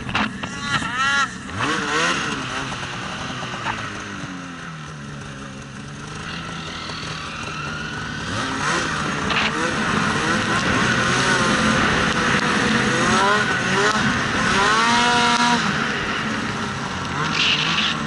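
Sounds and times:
snowmobile engine revving: 0:00.0 - 0:18.0.

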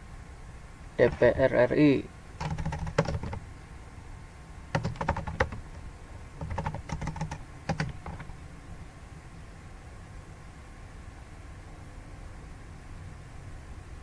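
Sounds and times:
computer keyboard typing: 0:01.0 - 0:01.5, 0:02.4 - 0:03.4, 0:04.7 - 0:08.4.

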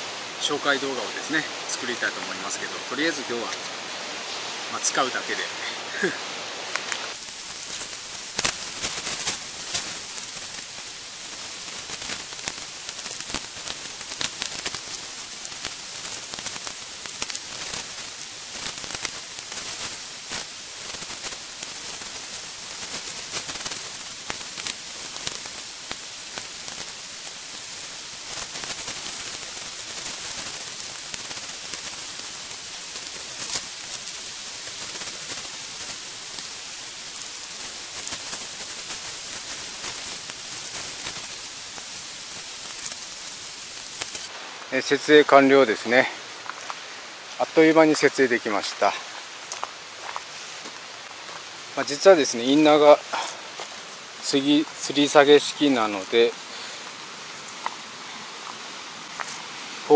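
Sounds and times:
steady high hiss: 0:00.0 - 0:59.9
crackles and clicks: 0:05.9 - 0:45.1, 0:45.7 - 0:57.8, 0:58.4 - 0:59.9
tent fabric rustling: 0:07.0 - 0:44.4.

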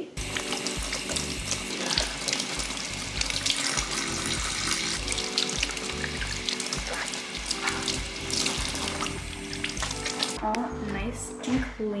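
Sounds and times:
background music with bass line: 0:00.0 - 0:12.0.

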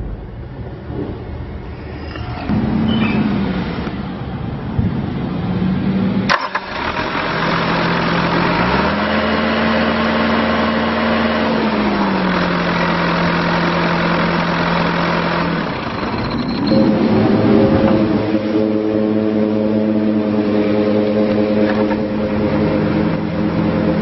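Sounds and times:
diesel engine running and revving: 0:00.0 - 0:24.0.

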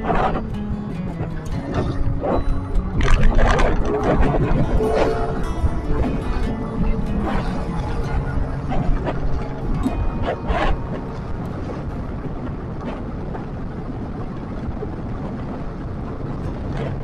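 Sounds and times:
motorcycle engine rumble: 0:00.0 - 0:17.0
wind rush: 0:00.0 - 0:17.0.

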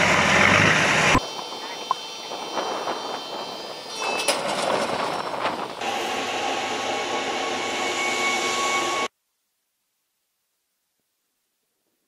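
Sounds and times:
high whine: 0:00.0 - 0:09.1
vehicle machinery noise: 0:00.0 - 0:09.1.

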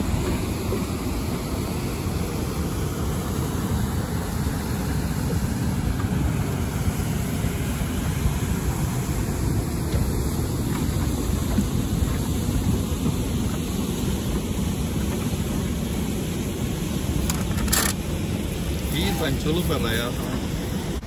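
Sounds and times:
turbulent river water: 0:00.0 - 0:21.0
waterfall rushing: 0:00.0 - 0:21.0.

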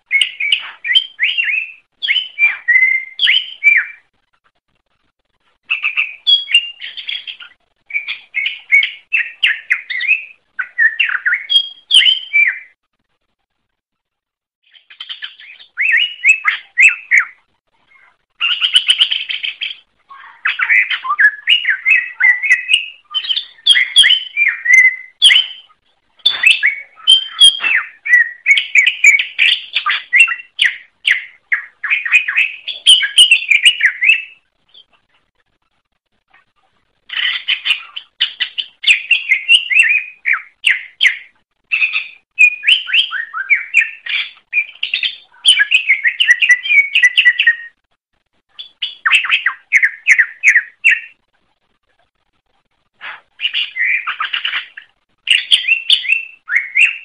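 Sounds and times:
bird chattering and whistling: 0:00.1 - 0:04.0, 0:05.7 - 0:12.7, 0:14.7 - 0:34.9, 0:37.1 - 0:47.8, 0:48.6 - 0:51.2, 0:53.0 - 0:57.0.

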